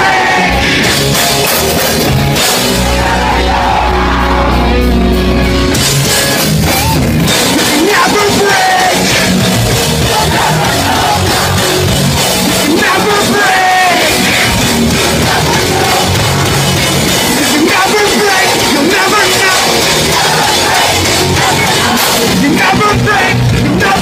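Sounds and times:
pop-punk band playing: 0.0s - 24.0s
sung vocals: 7.4s - 24.0s.

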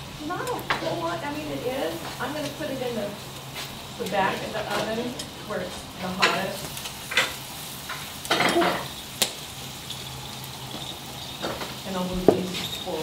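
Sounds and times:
meat sizzling over wood fire: 0.0s - 13.0s.

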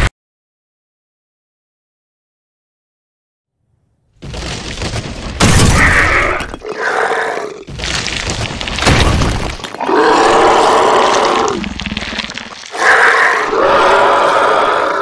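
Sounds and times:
ground rumbling and crashing: 4.2s - 6.8s, 7.6s - 13.4s
monster roaring: 5.7s - 7.7s, 9.8s - 15.0s.

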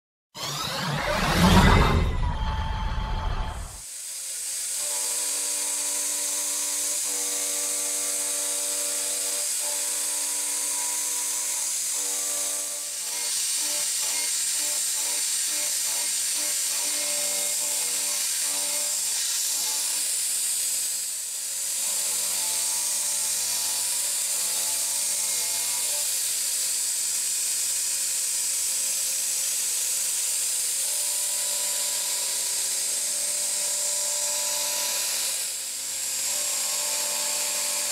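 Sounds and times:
milling machine whine: 0.4s - 3.8s.

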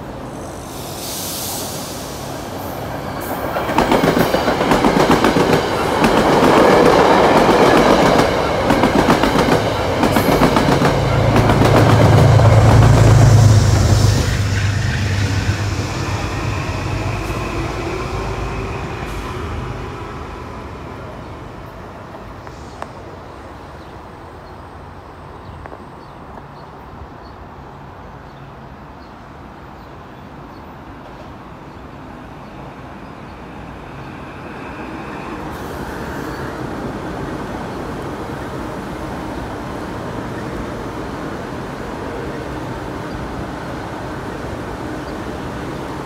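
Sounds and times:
strong low hum: 11.2s - 21.6s.

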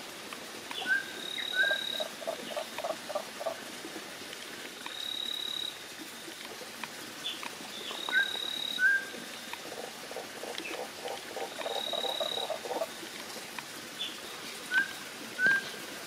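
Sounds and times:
thin high steady call: 10.8s - 12.9s.

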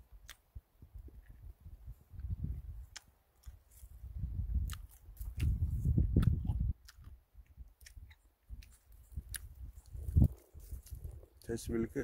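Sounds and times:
man chewing: 2.1s - 11.5s.

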